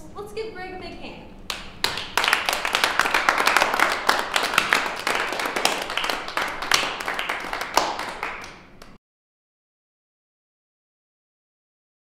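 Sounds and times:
small group applauding: 1.5s - 9.0s.

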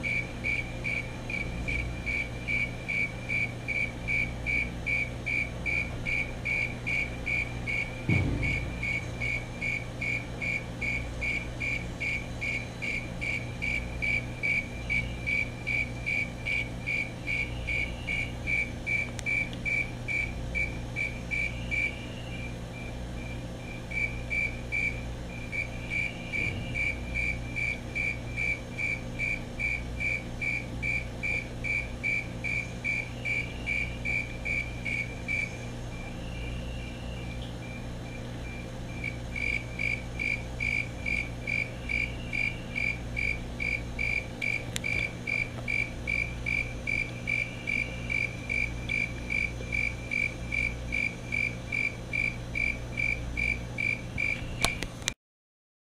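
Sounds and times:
cricket chirping: 0.0s - 54.8s.

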